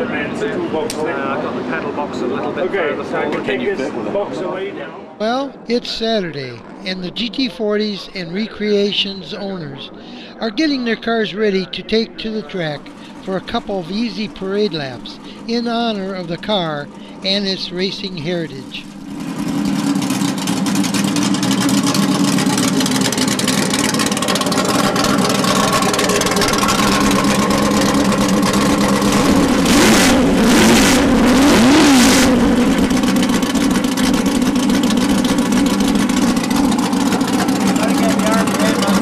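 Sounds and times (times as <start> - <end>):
car engine idling and revving: 5.7 - 39.0.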